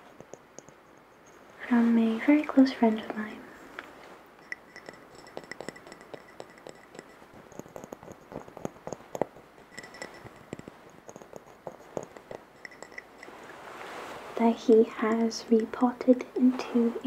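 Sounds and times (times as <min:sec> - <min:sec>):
fingers tapping glass jar: 0:00.0 - 0:01.5, 0:04.4 - 0:13.3, 0:14.7 - 0:16.2.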